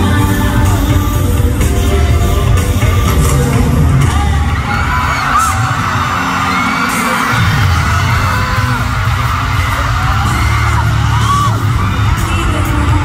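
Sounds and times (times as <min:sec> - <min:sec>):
person singing: 0:00.0 - 0:05.7, 0:10.1 - 0:13.0
pop concert music with heavy bass: 0:00.0 - 0:13.0
crowd yelling along: 0:04.0 - 0:13.0.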